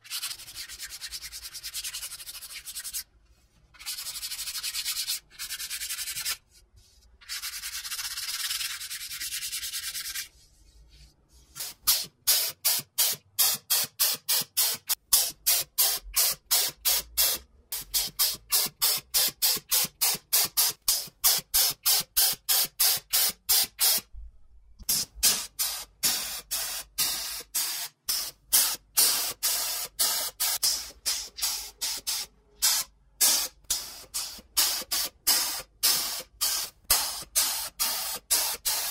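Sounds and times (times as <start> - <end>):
spray paint hissing bursts: 11.5 - 24.1, 24.8 - 38.9.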